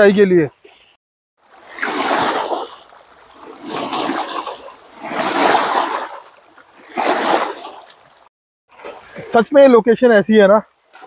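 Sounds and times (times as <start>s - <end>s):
small waves splashing on shore: 1.4s - 9.4s.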